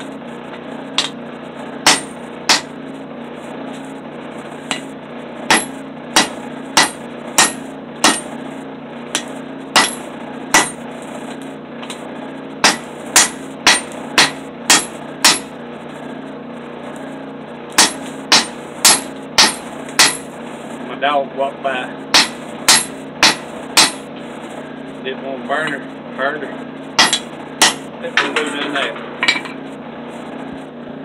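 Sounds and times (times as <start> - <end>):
steady low hum: 0.0 - 31.0
hammer ringing on anvil: 1.9 - 2.7, 5.5 - 8.3, 9.2 - 10.0, 10.6 - 10.8, 12.6 - 15.5, 17.8 - 20.3, 22.1 - 24.0, 27.0 - 28.4.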